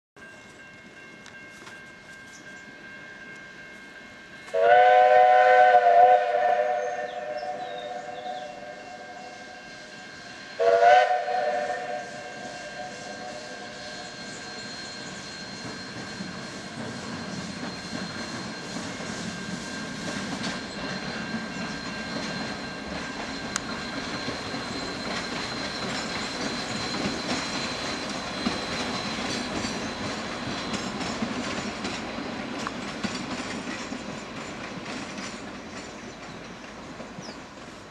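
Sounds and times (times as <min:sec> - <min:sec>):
steam train rolling: 0:00.2 - 0:37.9
steam locomotive whistle: 0:04.4 - 0:31.9.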